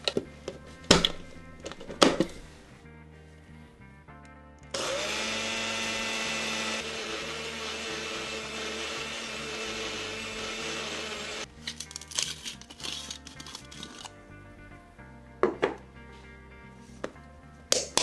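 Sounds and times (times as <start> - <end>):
blender grinding: 4.8 - 11.5.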